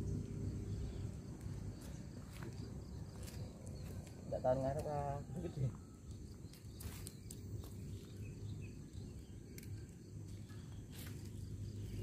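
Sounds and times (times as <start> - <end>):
steady low rumble: 0.0 - 4.3
faint high insect tones: 0.0 - 12.0.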